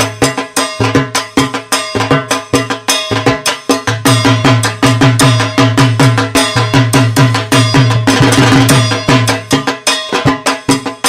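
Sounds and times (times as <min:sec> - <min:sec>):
ringing metallic clang: 0:00.0 - 0:11.0.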